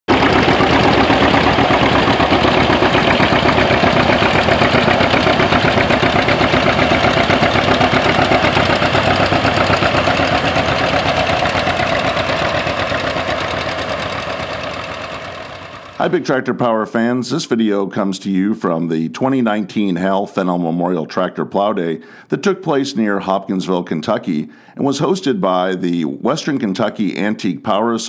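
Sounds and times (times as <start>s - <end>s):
tractor engines pulsing exhaust: 0.1s - 17.8s, 21.8s - 23.4s.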